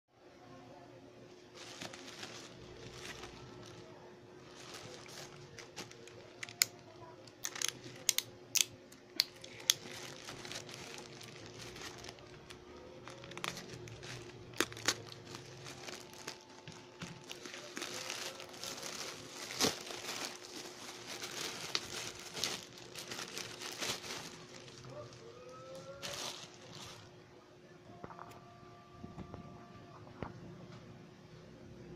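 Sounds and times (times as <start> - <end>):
bubble wrap rustling: 1.4 - 27.2
plastic mailer bag crinkling: 1.5 - 8.3, 9.2 - 27.1
plastic tearing: 1.6 - 27.1
plastic bag snapping: 4.5 - 12.4, 13.0 - 27.1.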